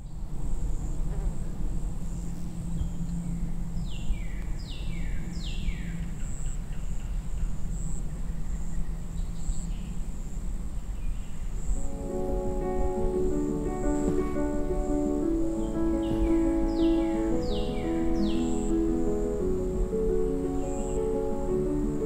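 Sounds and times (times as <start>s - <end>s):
high insect drone: 0.2s - 22.0s
bird calling: 12.8s - 22.0s.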